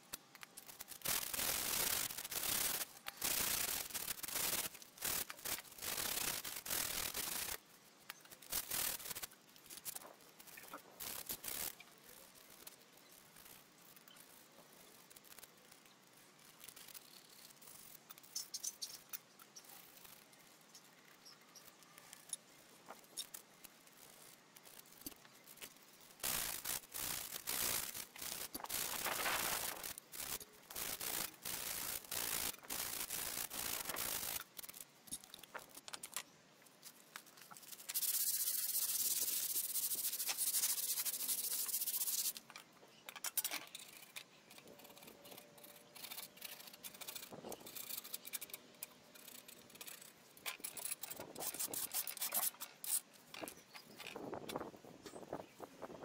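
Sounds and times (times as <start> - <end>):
sandpaper rubbing on metal: 0.6 - 7.6, 8.4 - 9.9, 26.2 - 34.8, 37.5 - 42.4, 43.4 - 54.2.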